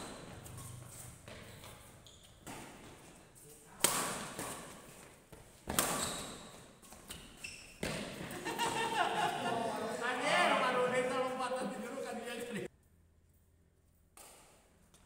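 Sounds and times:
rackets striking shuttlecock: 0:03.8 - 0:04.8, 0:05.6 - 0:06.2.

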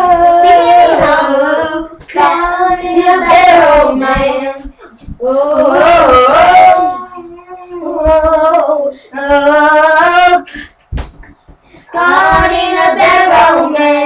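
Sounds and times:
girls singing long notes: 0:00.0 - 0:10.7, 0:11.9 - 0:14.0.

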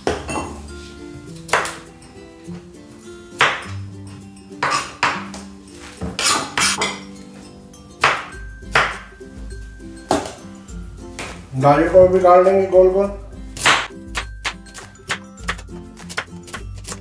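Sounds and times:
background music: 0:00.0 - 0:17.0
knife striking cutting board: 0:13.6 - 0:17.0.

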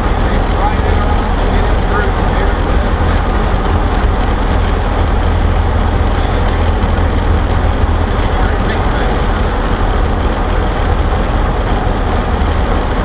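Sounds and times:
airplane engine and propeller drone: 0:00.0 - 0:13.0.

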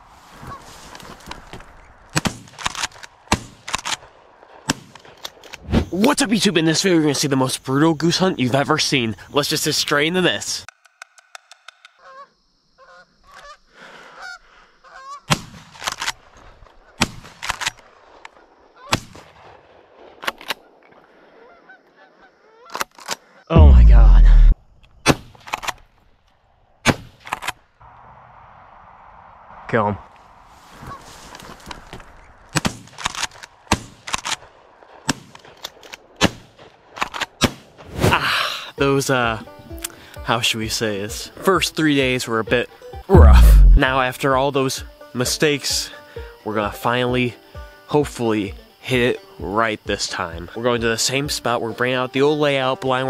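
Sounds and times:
geese honking: 0:12.0 - 0:15.3, 0:21.2 - 0:24.2
shotgun blasts: 0:18.9 - 0:20.4, 0:43.2 - 0:43.9
faint gunshots: 0:23.6 - 0:24.5, 0:43.2 - 0:43.9
shotgun shots: 0:43.2 - 0:43.9.

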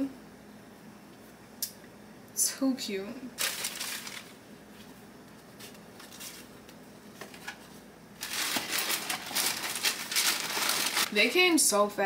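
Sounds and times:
packaging crinkling: 0:03.4 - 0:04.4, 0:05.5 - 0:07.6, 0:08.2 - 0:11.1.

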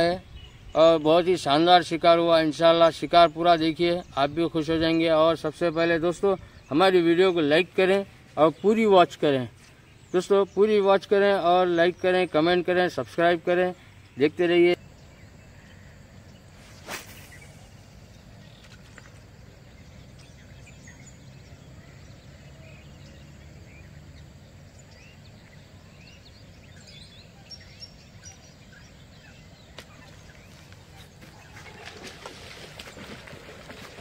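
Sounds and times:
faint bird chirps: 0:13.6 - 0:33.2.

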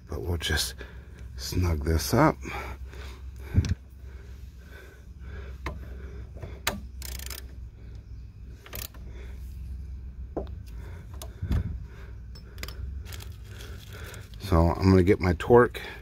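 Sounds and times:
low steady rumble: 0:00.0 - 0:16.0.

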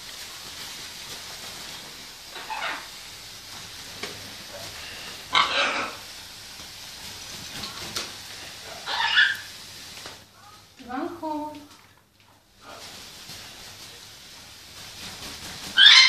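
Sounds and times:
parrot calls: 0:02.3 - 0:03.0, 0:04.5 - 0:06.2, 0:07.7 - 0:09.6, 0:15.7 - 0:16.0.

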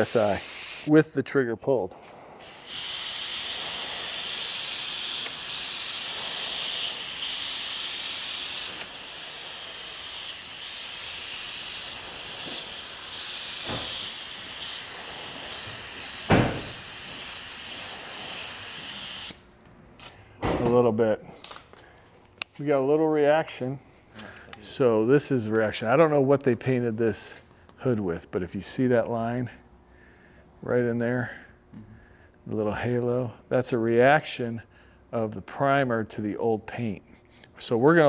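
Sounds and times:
spray gun air hiss: 0:00.0 - 0:00.9, 0:02.4 - 0:19.4.

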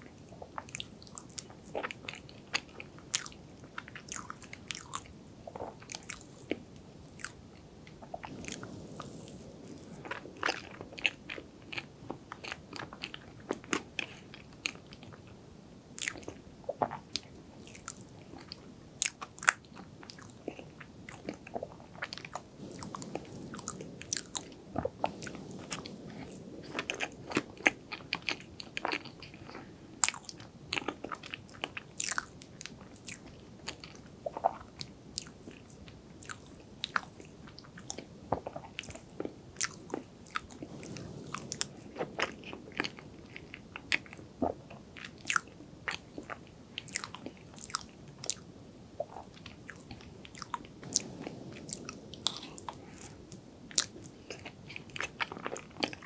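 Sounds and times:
moist chewing: 0:07.9 - 0:15.2, 0:16.0 - 0:56.0
lip smacks: 0:49.0 - 0:56.0.

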